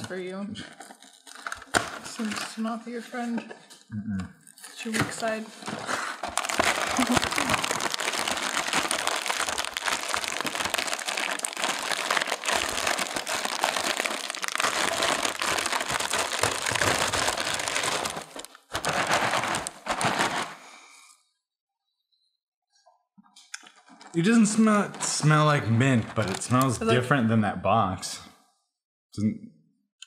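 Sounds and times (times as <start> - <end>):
plastic bag crinkling: 0.7 - 3.2, 4.6 - 20.6, 23.6 - 26.9.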